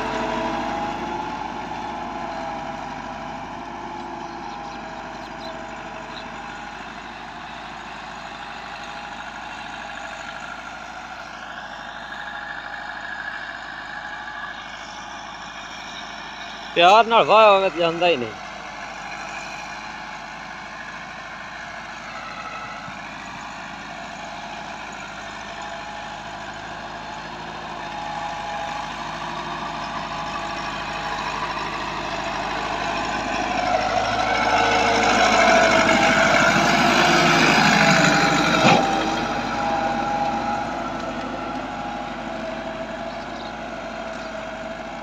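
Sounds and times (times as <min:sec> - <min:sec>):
tractor diesel engine running: 0:00.0 - 0:45.0.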